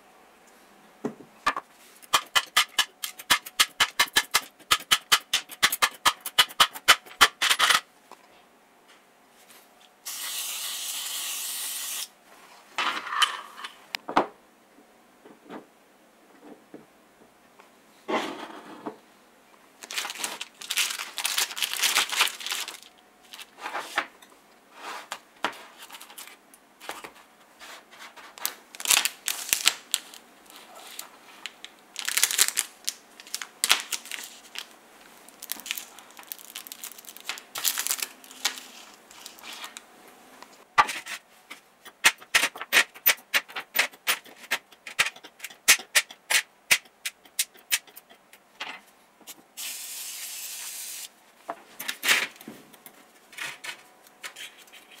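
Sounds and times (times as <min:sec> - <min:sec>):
plastic packaging crinkling: 0:19.8 - 0:23.6, 0:28.3 - 0:39.8.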